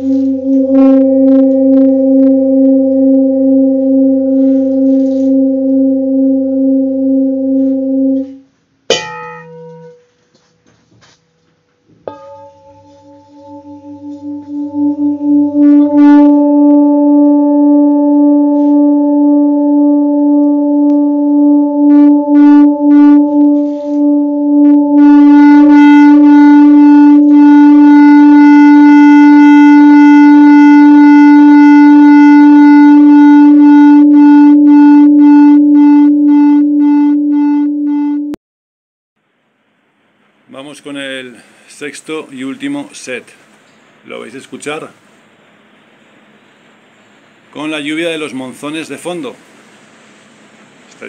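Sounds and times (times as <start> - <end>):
singing bowl humming: 0.0 - 8.4, 9.0 - 38.4.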